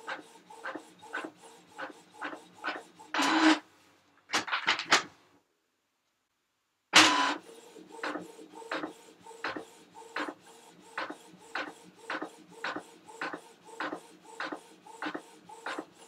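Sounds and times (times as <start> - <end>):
printer printing: 0.0 - 3.6, 7.0 - 16.0.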